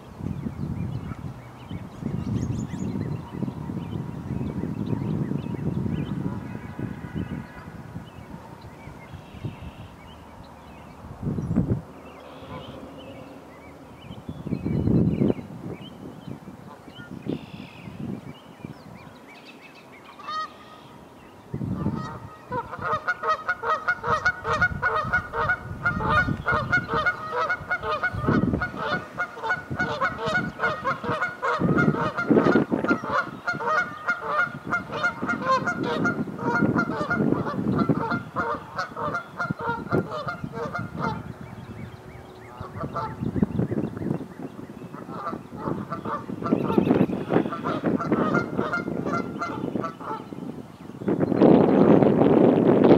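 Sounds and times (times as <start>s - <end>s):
geese honking: 12.2s - 13.3s, 20.2s - 21.0s, 21.8s - 41.4s, 42.5s - 43.6s, 44.9s - 50.4s.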